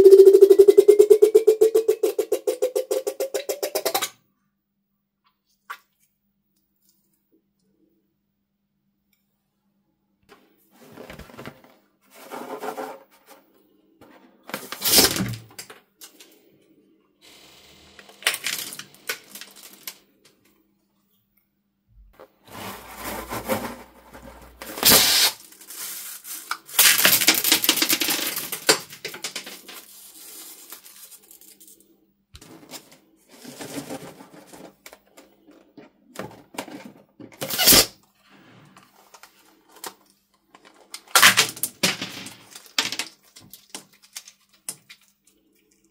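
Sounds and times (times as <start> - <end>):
plastic beads clattering: 18.2 - 20.0, 22.6 - 34.8, 40.8 - 45.1.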